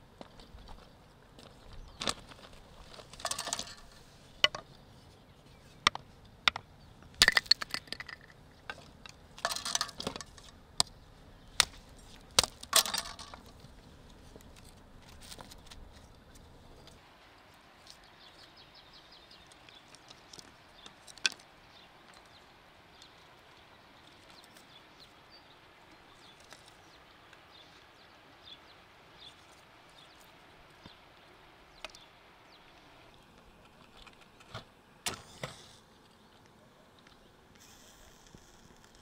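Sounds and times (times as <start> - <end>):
faint steady hiss: 0.0 - 39.0
dry wood snapping: 7.2 - 13.6.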